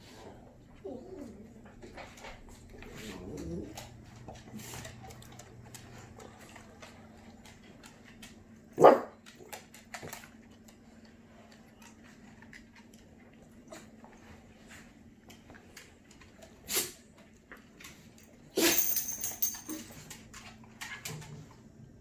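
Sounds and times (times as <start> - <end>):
dog whining: 0.7 - 1.7
dog barking: 8.8 - 9.2.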